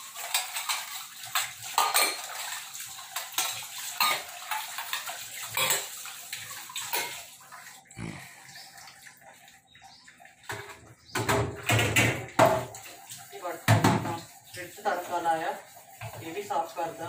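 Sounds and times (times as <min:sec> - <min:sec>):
tap water running: 0:00.0 - 0:17.0
water splashing: 0:00.0 - 0:17.0
steel dishes clanking: 0:00.2 - 0:02.5, 0:03.4 - 0:05.9, 0:06.8 - 0:07.2.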